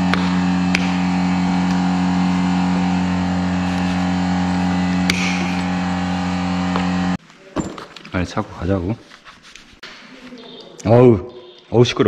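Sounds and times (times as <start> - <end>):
steady machine hum: 0.0 - 7.2.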